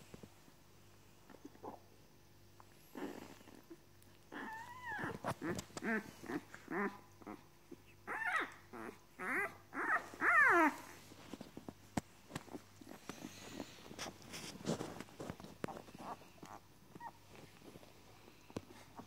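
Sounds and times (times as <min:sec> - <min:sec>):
puppies whimpering and squeaking: 0:04.3 - 0:11.1, 0:15.6 - 0:17.2.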